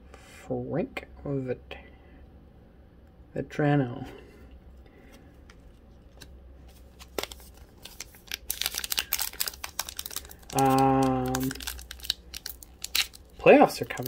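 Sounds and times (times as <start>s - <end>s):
wrapper crinkling as torn open: 6.8s - 14.0s.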